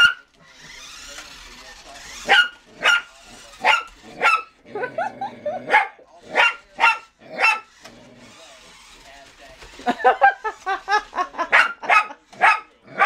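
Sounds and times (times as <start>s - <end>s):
small dog barking: 2.2s - 4.5s, 5.7s - 7.7s, 11.5s - 13.0s.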